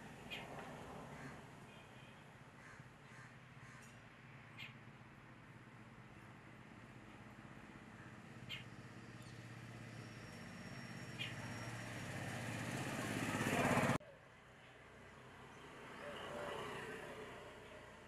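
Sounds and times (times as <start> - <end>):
outdoor ambience: 0.0 - 18.0
passing vehicle engine: 7.8 - 14.0, 15.0 - 18.0.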